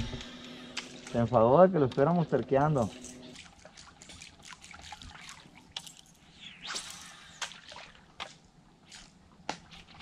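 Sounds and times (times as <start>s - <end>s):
water dripping and splashing: 2.6s - 10.0s
short swish: 6.2s - 8.0s.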